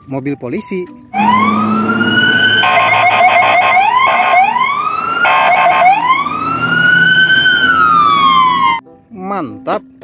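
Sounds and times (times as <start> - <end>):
siren wailing: 1.1 - 8.8.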